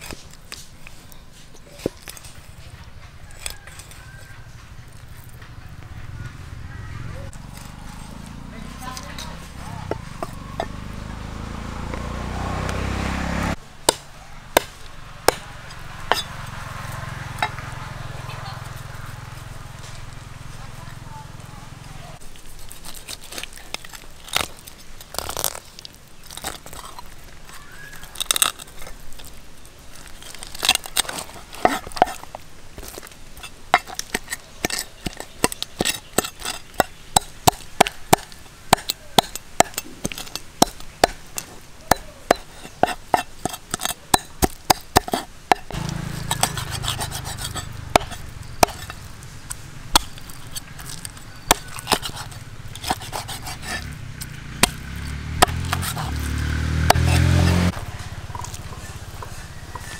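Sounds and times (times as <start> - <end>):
knife scraping fish on wood: 30.2 - 54.0, 55.4 - 59.9.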